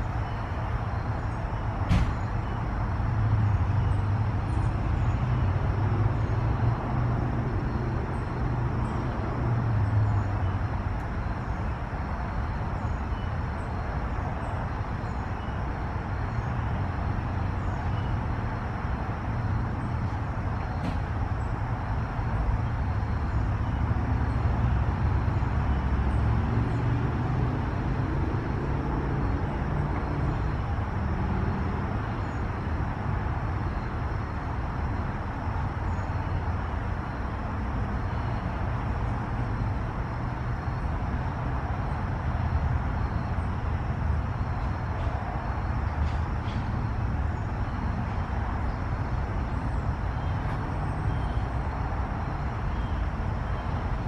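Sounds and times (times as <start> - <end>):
distant road traffic rumble: 0.0 - 54.0.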